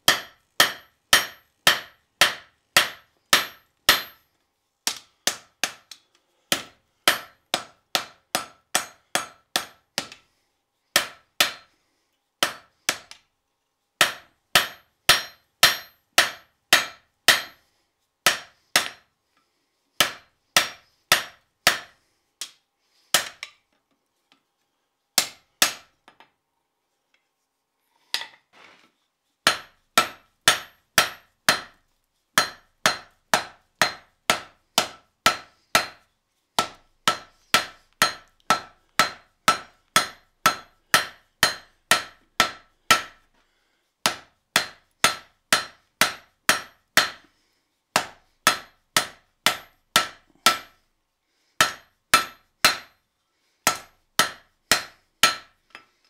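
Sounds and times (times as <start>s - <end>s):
hammer ringing on anvil: 14.0s - 17.6s.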